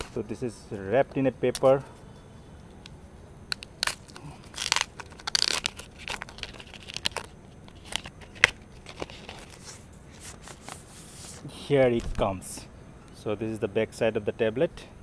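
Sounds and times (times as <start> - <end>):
sharp crack: 3.5 - 6.3
paper rustling and tearing: 3.6 - 11.5.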